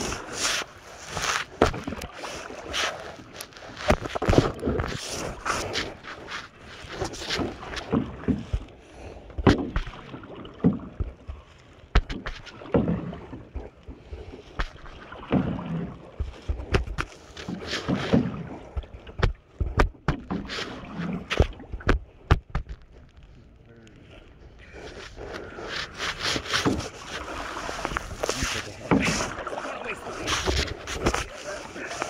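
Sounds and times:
paddle splashing in water: 0.0s - 32.0s
knocks against canoe hull: 9.3s - 10.0s, 10.6s - 13.2s, 14.0s - 22.8s, 28.2s - 29.5s.

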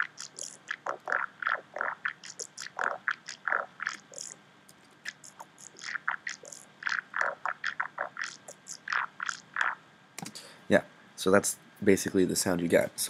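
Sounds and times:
growly synth bass stabs: 0.0s - 4.4s.

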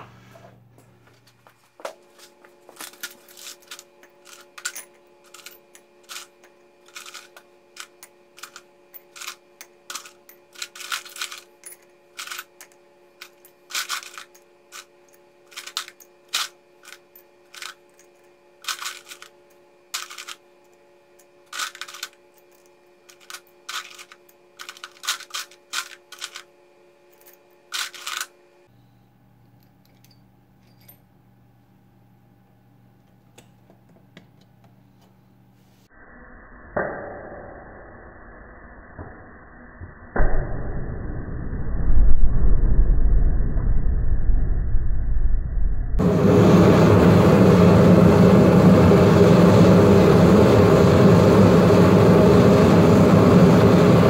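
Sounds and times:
steady hum: 0.0s - 54.0s
metal pieces clinking: 2.8s - 14.9s, 15.5s - 19.4s, 20.0s - 20.4s, 21.5s - 26.5s, 27.1s - 28.3s.

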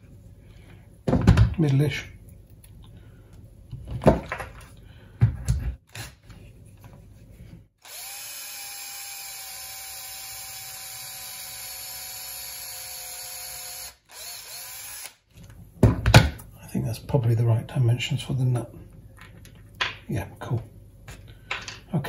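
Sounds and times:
cordless drill motor whine: 7.8s - 15.2s.

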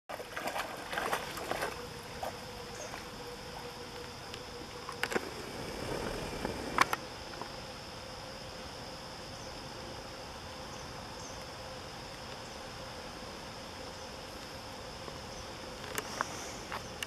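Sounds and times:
dog splashing through water: 0.1s - 3.0s
high insect drone: 0.1s - 17.0s.

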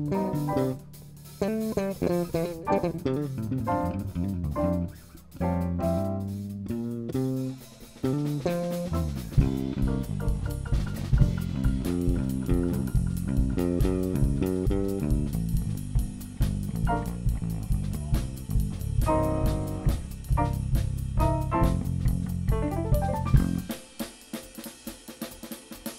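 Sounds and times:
electric bass solo: 0.0s - 23.7s
drum kit: 0.0s - 25.9s
stage piano: 2.2s - 6.3s, 16.8s - 17.4s, 18.9s - 23.7s.

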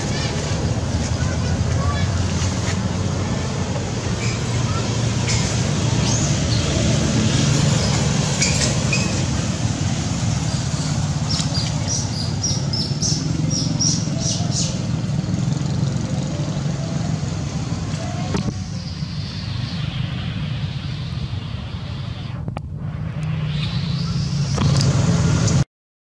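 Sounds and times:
steady low rumble: 17.2s - 25.4s.

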